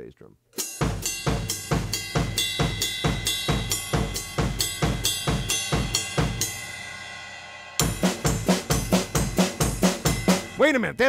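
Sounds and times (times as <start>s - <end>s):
drum kit groove: 0.6s - 11.0s
drums and cymbals ringing: 0.6s - 11.0s.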